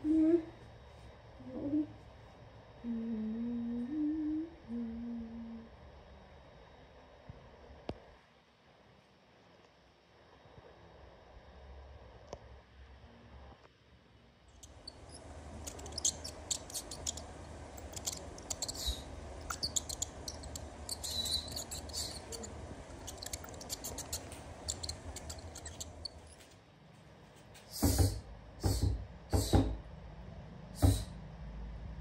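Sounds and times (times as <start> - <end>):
mice squeaking: 14.5 - 26.5
mice scratching: 14.6 - 26.5
loud thumps on wood: 27.8 - 29.8.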